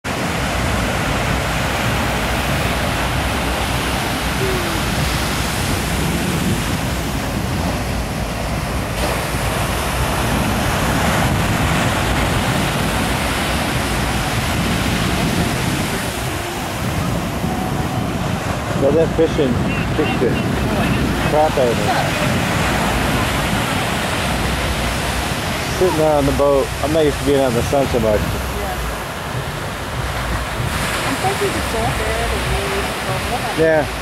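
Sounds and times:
ocean surf breaking on beach: 0.1 - 34.0.

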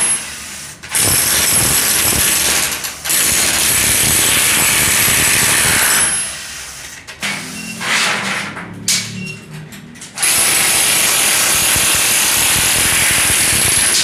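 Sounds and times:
demolition hammer chipping concrete: 0.9 - 6.3, 10.2 - 14.0.

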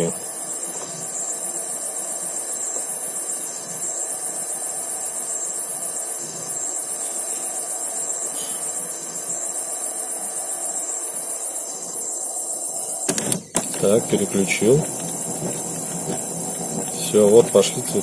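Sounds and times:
printer mechanical whirr: 12.9 - 18.0.

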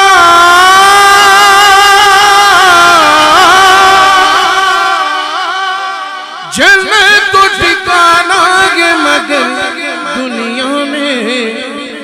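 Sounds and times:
man singing through loudspeaker: 0.0 - 12.0.

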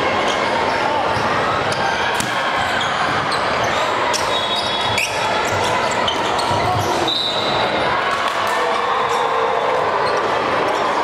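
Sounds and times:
echoing gym hall din: 0.0 - 11.0
volleyballs striking and bouncing: 2.1 - 2.7.

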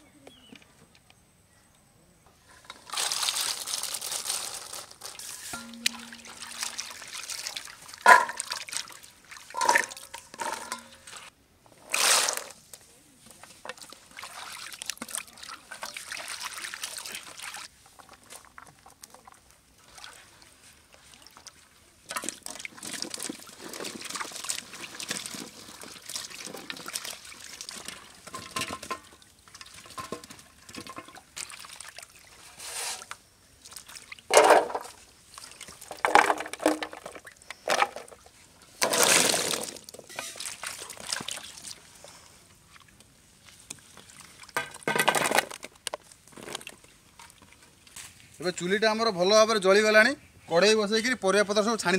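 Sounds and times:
vegetables sloshing in water: 2.8 - 10.8
water splashes: 5.6 - 11.1, 13.7 - 17.7, 18.4 - 32.4, 38.8 - 41.9.

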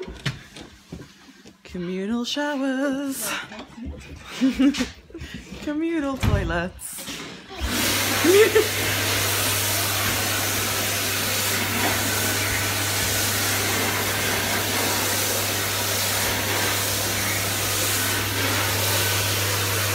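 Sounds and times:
electric blower running: 7.6 - 19.9.

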